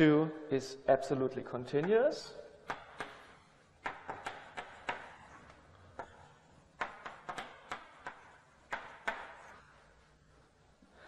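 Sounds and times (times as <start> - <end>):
chalk tapping on blackboard: 2.6 - 9.7.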